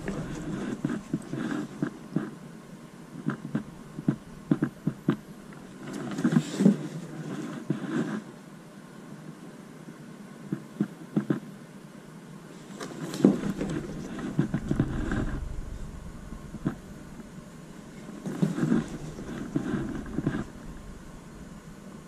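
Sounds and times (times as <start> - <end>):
low rumble: 13.2 - 22.0.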